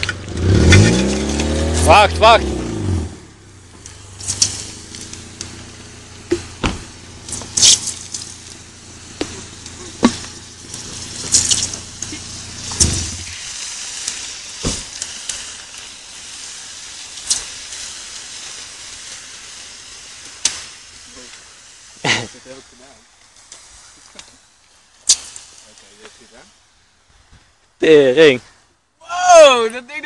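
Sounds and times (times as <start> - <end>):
sharp pops and bangs: 0.0 - 2.8, 3.6 - 22.3, 23.2 - 26.3
car engine idling: 0.0 - 23.4
burning tyre hissing and crackling: 0.0 - 30.0.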